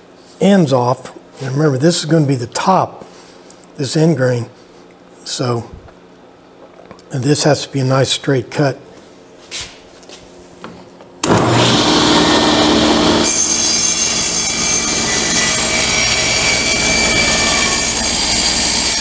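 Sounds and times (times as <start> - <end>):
table saw running: 11.2 - 19.0
saw blade cutting through wood: 11.3 - 19.0.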